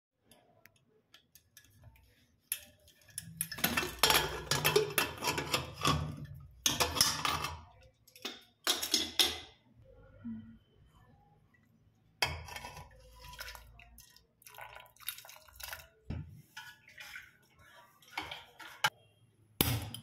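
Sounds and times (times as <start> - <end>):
metal lid scraping and clattering: 3.4 - 7.7.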